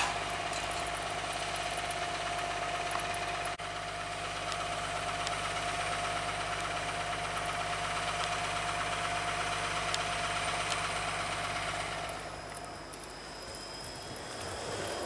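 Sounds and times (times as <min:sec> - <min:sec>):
bus and streetcar hum: 0:08.5 - 0:15.0.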